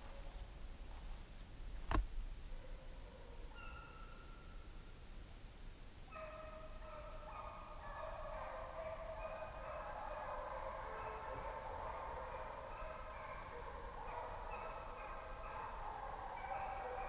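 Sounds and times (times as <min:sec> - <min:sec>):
distant hunting dogs baying: 0:02.5 - 0:04.4, 0:06.1 - 0:17.0.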